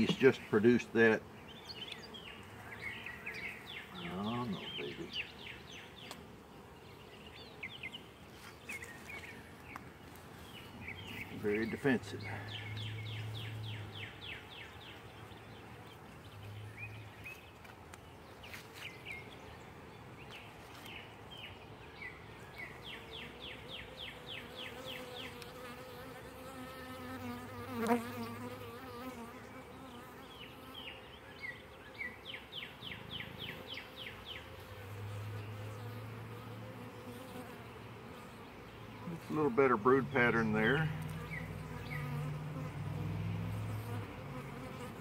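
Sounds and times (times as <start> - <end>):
honeybees buzzing: 0.0 - 45.0
bee flying past microphone: 22.8 - 30.9, 40.9 - 45.0.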